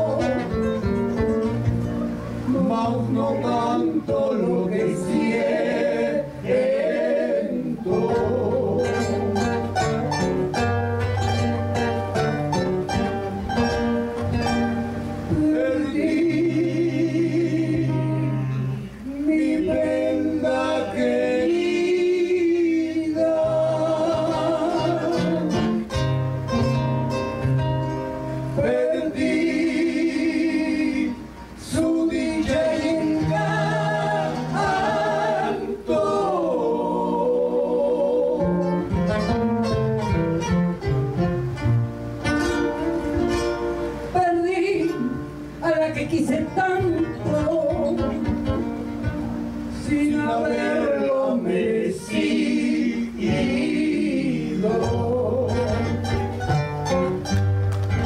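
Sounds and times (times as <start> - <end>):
men singing into microphones: 0.0 - 0.7, 2.4 - 9.8, 15.3 - 18.4, 19.0 - 25.8, 28.6 - 38.9, 49.7 - 56.1
acoustic guitars strummed: 0.0 - 58.0.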